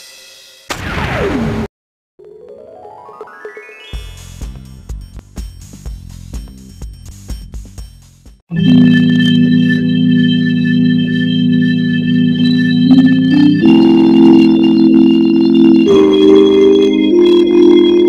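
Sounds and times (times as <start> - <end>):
organ chords: 8.5 - 18.0.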